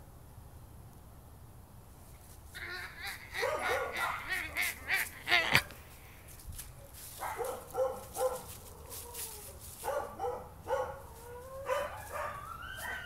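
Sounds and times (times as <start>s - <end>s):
child howling: 2.6s - 5.7s, 11.2s - 13.0s
child yipping and barking: 2.6s - 5.7s, 7.2s - 13.0s.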